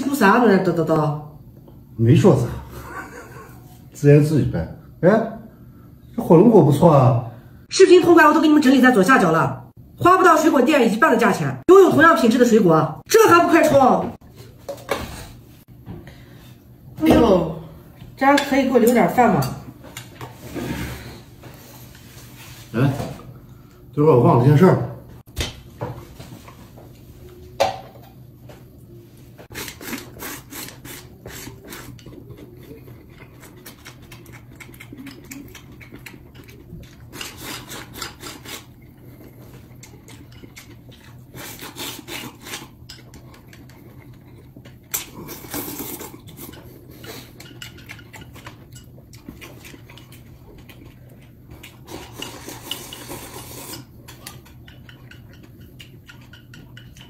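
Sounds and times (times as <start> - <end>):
chewing: 29.5 - 57.0
chopsticks clicking on porcelain bowl: 54.2 - 57.0.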